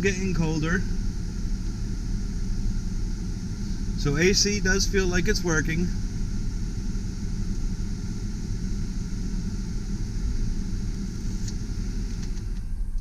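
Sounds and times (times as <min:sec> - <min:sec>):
air-conditioning blower rushing: 0:00.0 - 0:13.0
truck engine idling: 0:00.0 - 0:13.0
climate control clicks: 0:10.9 - 0:13.0.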